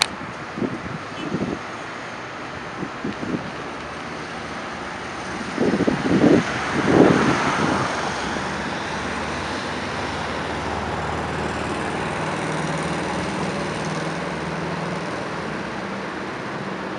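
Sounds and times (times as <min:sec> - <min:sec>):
cars driving past: 0:00.0 - 0:16.9
low engine hum: 0:00.0 - 0:16.9.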